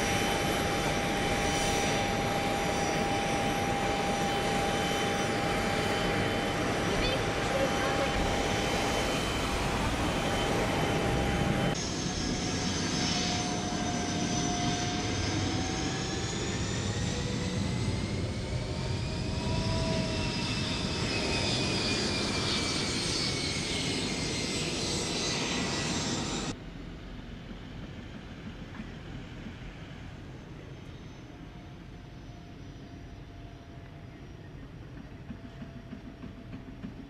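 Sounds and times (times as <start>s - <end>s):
jet engines whining: 0.0s - 35.7s.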